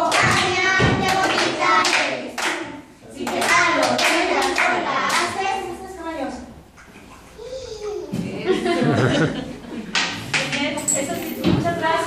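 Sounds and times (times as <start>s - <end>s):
children singing: 0.0s - 5.8s
hands clapping: 0.1s - 2.6s, 3.2s - 5.3s, 9.9s - 10.7s.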